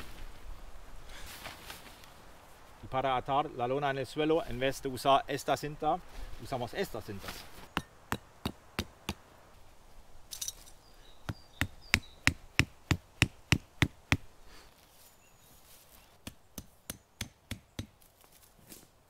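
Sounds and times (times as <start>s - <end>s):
rock striking tent stakes: 7.3s - 9.2s, 11.3s - 14.3s, 16.2s - 18.1s.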